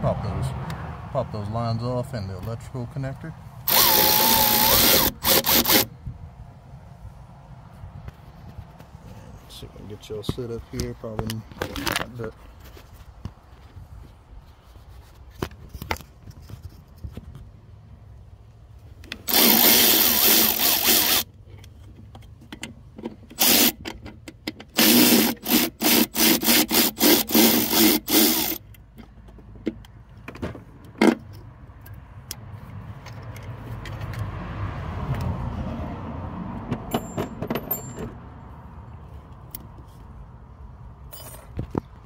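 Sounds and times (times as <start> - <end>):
cordless ratchet whirring: 3.7 - 5.9, 19.2 - 21.3, 23.4 - 23.8, 24.7 - 28.6
clicks of valve being handled: 28.6 - 34.3.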